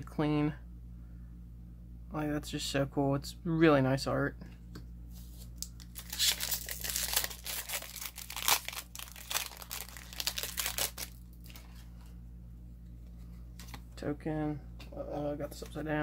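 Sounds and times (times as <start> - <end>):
foil wrapper crinkling and tearing: 5.6 - 11.9.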